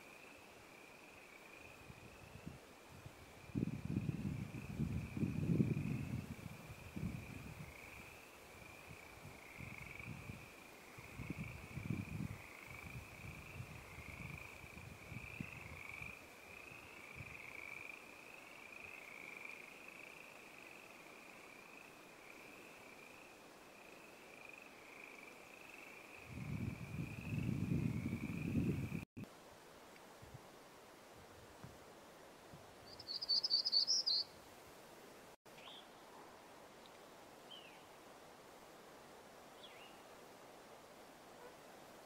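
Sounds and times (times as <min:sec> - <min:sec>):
wind rumble on microphone: 0:01.8 - 0:16.2, 0:26.2 - 0:29.1.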